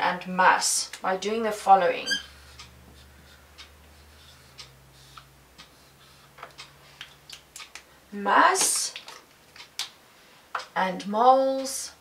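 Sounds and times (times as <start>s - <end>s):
marker scratching on whiteboard: 2.0s - 6.4s.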